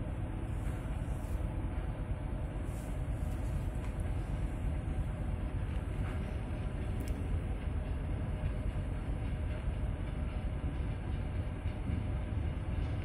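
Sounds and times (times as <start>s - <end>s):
electric locomotive rumble: 0.0s - 13.0s.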